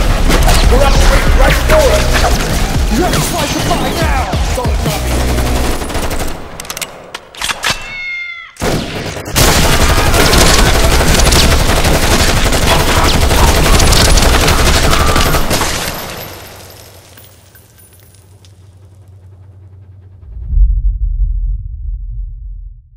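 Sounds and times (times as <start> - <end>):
rifles firing rapid volley: 0.0 - 6.5, 8.6 - 16.2
scattered gunshots: 0.0 - 6.5, 8.6 - 16.6
wailing cry: 7.8 - 8.6.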